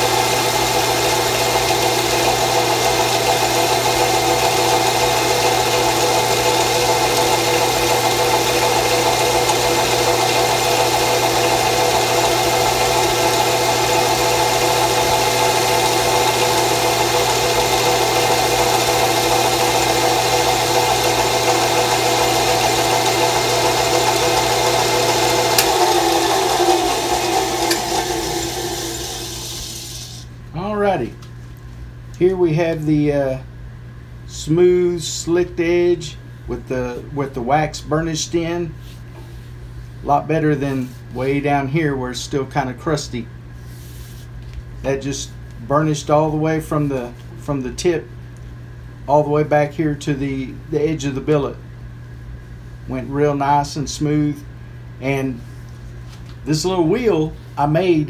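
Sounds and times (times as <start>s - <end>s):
drill press motor hum: 0.0s - 30.4s.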